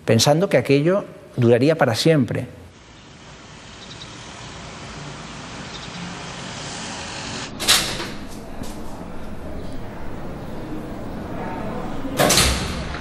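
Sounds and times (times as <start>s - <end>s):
street traffic noise: 2.7s - 13.0s.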